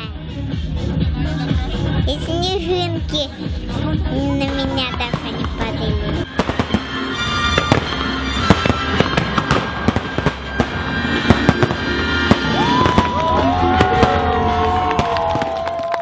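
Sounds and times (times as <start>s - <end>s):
music: 0.0s - 16.0s
fireworks bursting and crackling: 3.7s - 16.0s
crowd cheering: 11.5s - 16.0s.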